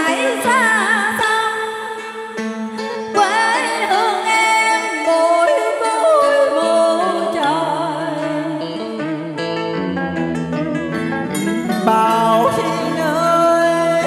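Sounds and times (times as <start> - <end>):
instrumental backing: 0.0 - 14.0
person singing karaoke: 0.0 - 14.0
bass line: 9.4 - 14.0.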